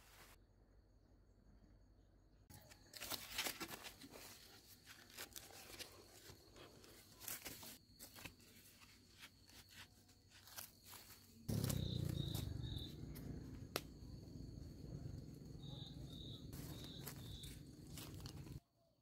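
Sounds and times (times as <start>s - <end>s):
stick stabbing into leaves and soil: 10.3s - 14.1s, 16.0s - 18.6s.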